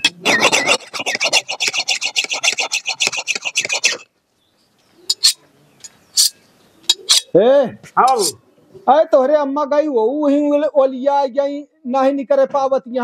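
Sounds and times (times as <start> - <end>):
file rasping on metal blade: 0.0 - 4.1, 5.1 - 5.4, 6.2 - 7.2.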